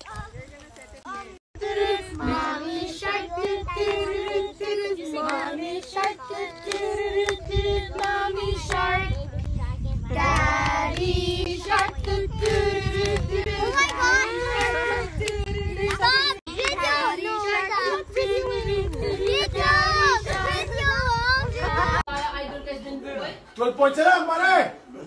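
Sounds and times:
children singing together: 1.6s - 9.0s, 10.1s - 22.0s.

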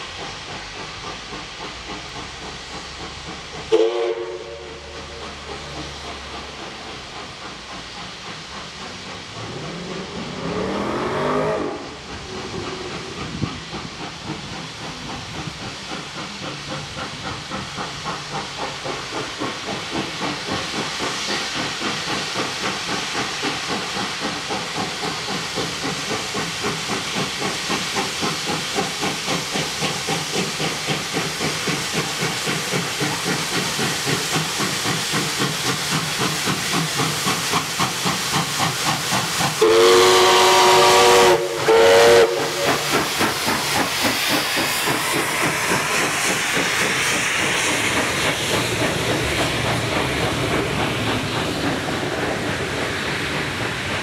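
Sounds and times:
locomotive exhaust beats: 0.0s - 54.0s
steam hissing: 0.0s - 54.0s
steam locomotive whistle: 3.7s - 5.3s, 9.7s - 12.0s, 39.5s - 43.1s.

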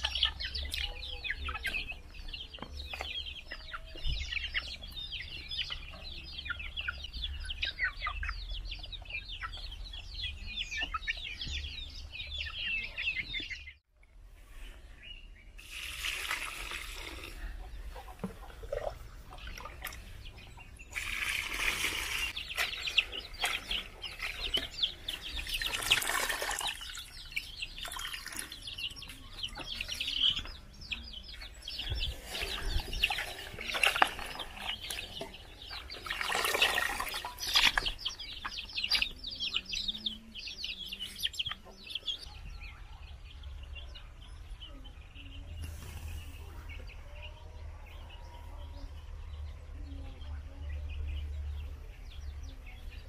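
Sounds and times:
water pouring into a pot: 15.6s - 17.4s, 20.9s - 22.3s, 25.6s - 27.1s
water splashing: 20.9s - 28.6s, 32.2s - 38.2s.

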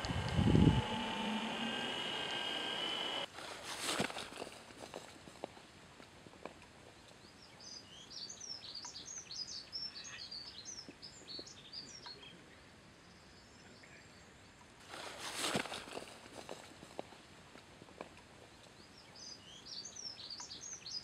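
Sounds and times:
loud whoosh: 0.0s - 3.3s
faint outdoor hiss: 0.0s - 21.0s
small songbird twittering: 18.6s - 21.0s.

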